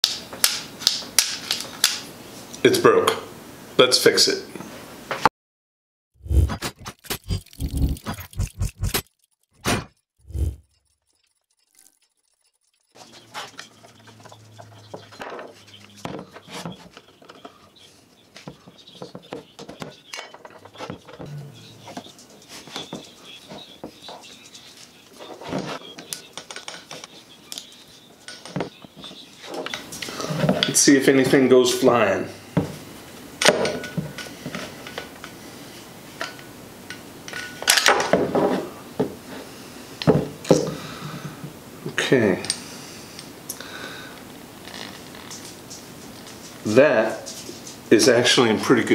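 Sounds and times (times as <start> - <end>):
screwdriver clicking and scraping metal: 6.6 - 14.0.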